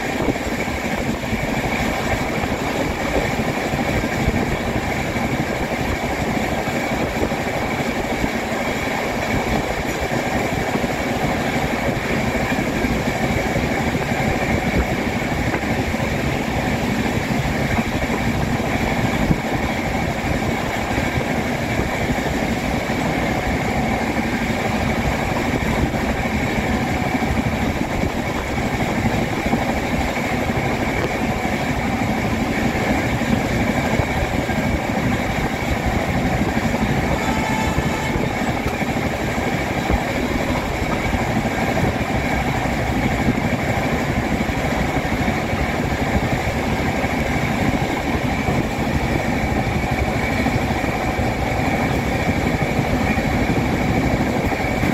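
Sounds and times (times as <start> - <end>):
train wheels on rails: 0.0 - 54.9.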